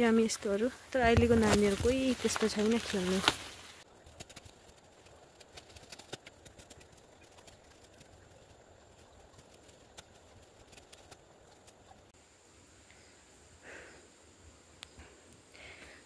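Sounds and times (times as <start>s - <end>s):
small clicks and snaps: 4.2s - 11.8s.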